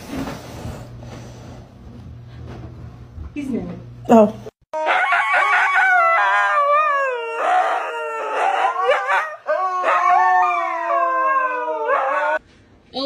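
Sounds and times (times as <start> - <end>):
huskies howling: 4.8 - 12.4.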